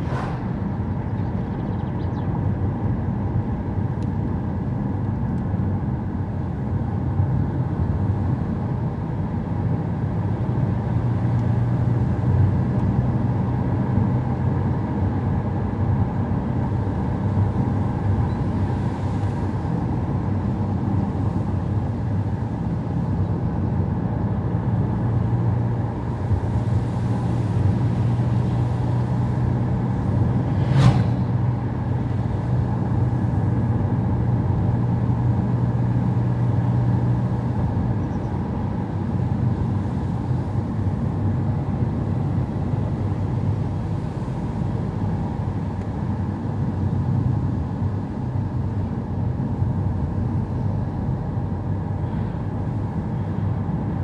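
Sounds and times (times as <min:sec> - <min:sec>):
tyre and road noise: 0:00.0 - 0:02.8, 0:16.2 - 0:47.2
car engine hum: 0:00.0 - 0:54.0.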